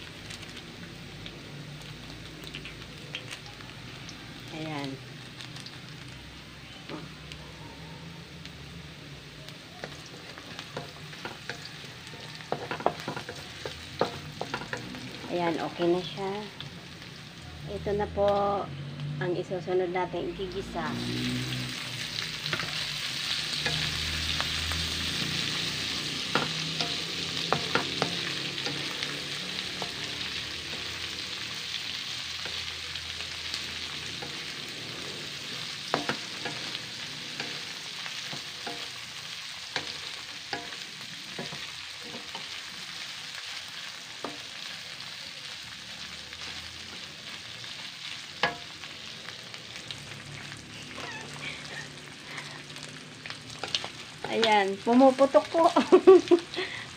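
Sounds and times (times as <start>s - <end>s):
meat sizzling in hot oil: 0.0s - 56.9s
spatula tapping a pan: 12.4s - 14.9s, 26.3s - 31.0s, 35.9s - 36.7s, 39.8s - 42.4s, 48.4s - 48.7s.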